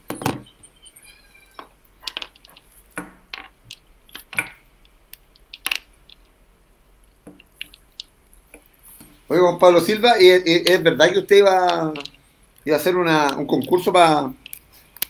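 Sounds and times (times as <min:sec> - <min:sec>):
headphones and cable handled: 0:01.5 - 0:04.6, 0:11.5 - 0:15.0.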